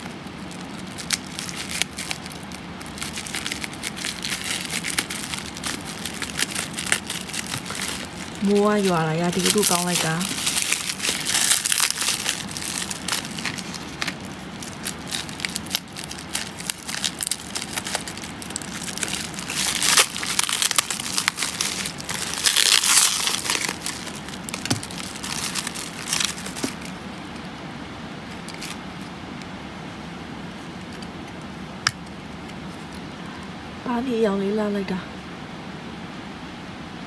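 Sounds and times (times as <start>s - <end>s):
bubble wrap crinkling: 0.0s - 27.5s, 28.2s - 29.2s.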